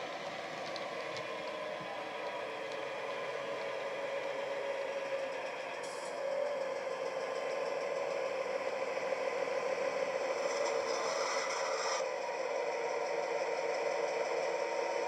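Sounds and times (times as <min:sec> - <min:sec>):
diesel engine drone from small speaker: 0:00.0 - 0:15.0
hiss: 0:10.4 - 0:12.2.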